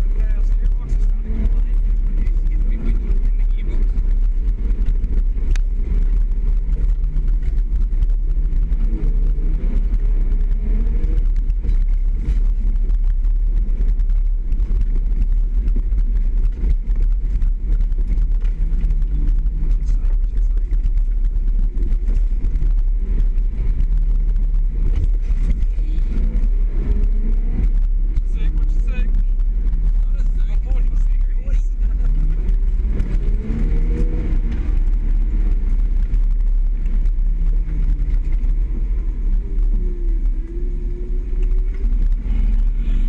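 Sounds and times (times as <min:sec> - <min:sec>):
vehicle rumbling on dirt track: 0:00.0 - 0:43.0.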